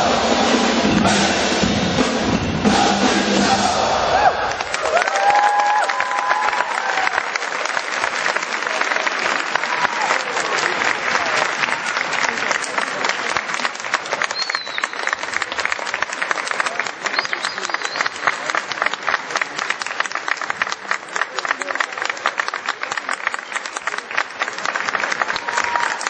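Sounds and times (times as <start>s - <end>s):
audience applauding: 4.1s - 26.0s.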